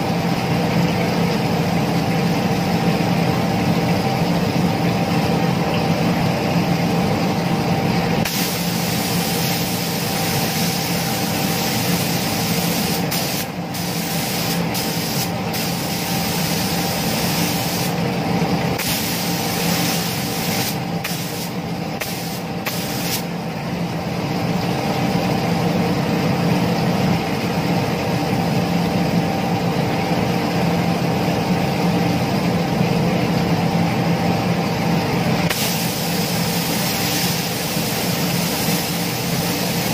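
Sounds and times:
steady motor hum: 0.0 - 39.9
spray gun hissing: 8.2 - 18.0, 18.8 - 23.3, 35.5 - 39.9.

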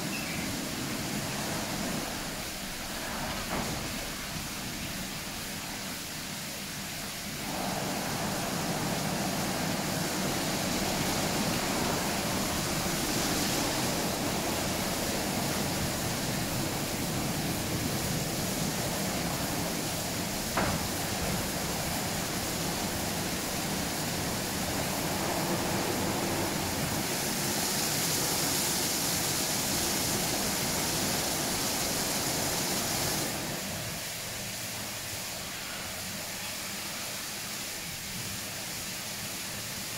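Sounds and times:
car wash spray and brushes: 0.0 - 39.9.

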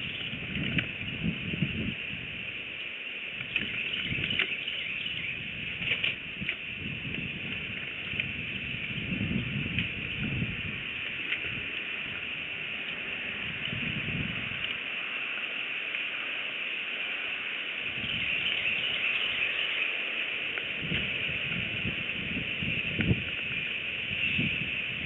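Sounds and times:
steady high microphone hiss: 0.0 - 25.0
birds rustling sticks in nest: 3.3 - 16.4.

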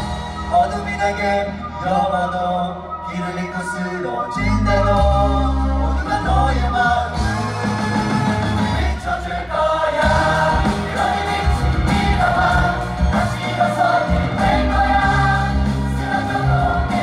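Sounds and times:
amplified music with heavy bass: 0.0 - 17.0
group of men singing: 4.3 - 17.0.

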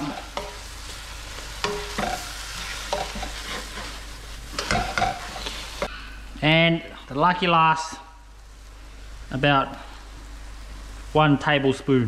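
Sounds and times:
crab sizzling in a pan: 0.0 - 12.0
utensil scraping a pan: 1.6 - 5.9.

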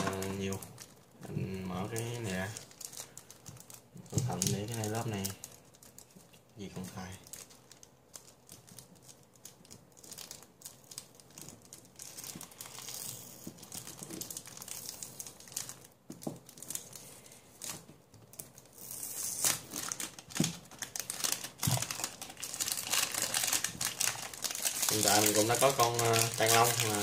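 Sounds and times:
plastic wrapping crinkling: 0.0 - 27.0.

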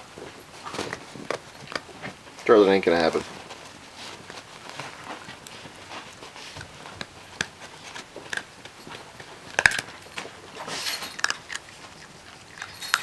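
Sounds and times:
puppy crunching a biscuit: 0.2 - 13.0.

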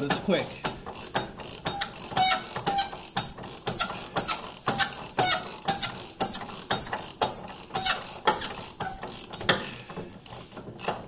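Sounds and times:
hand ratchet turning: 0.0 - 11.0
high squeak: 1.7 - 9.5.

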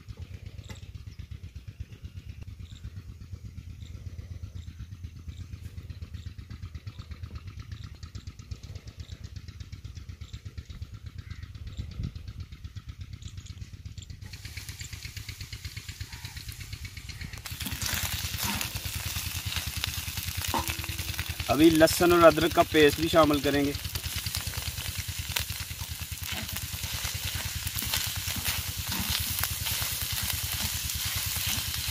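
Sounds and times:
engine chugging: 0.0 - 31.9
meat sizzling on a griddle: 14.3 - 16.6, 17.4 - 31.9.

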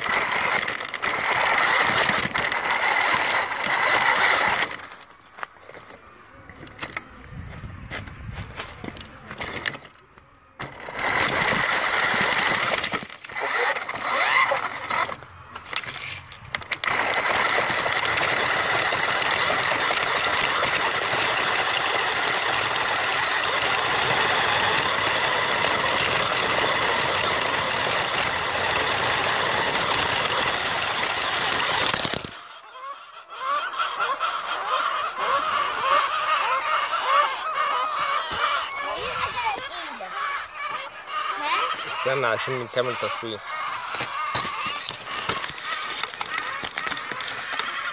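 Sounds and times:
toy car motor whining: 0.0 - 7.4, 8.2 - 32.6, 34.0 - 47.9
wheels on gravel: 0.0 - 33.0, 34.1 - 47.9
honking bird calls: 32.3 - 47.9.

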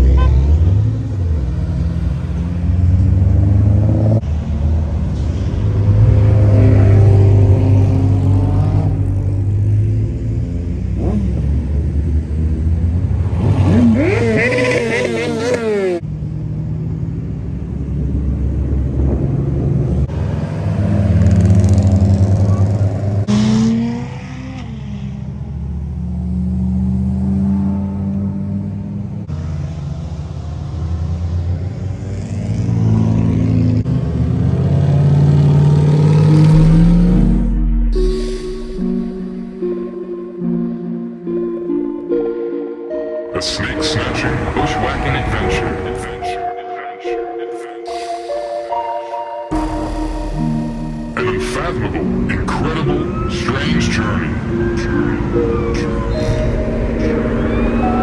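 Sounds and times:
car engines rumbling: 0.0 - 58.0
rising and falling pitched sound: 35.8 - 58.0.

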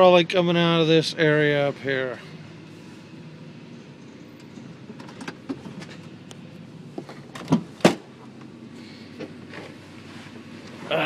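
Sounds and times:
truck door clunks: 7.0 - 8.1.

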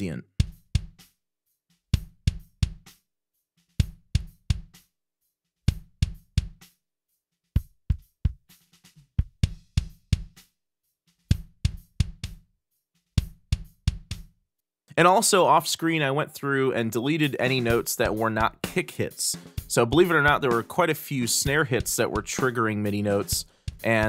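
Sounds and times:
snare drum: 7.6 - 10.5, 11.2 - 12.4, 13.2 - 14.3, 17.0 - 24.0.

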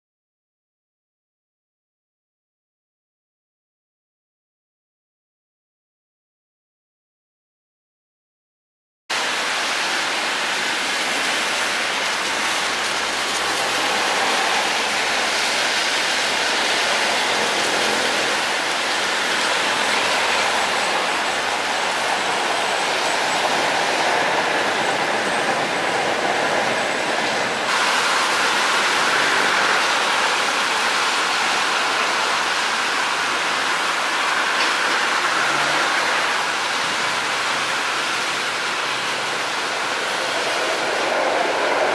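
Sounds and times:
rain hiss: 9.1 - 41.9
trains rolling: 9.1 - 41.9
tyres on wet road: 9.1 - 41.9.

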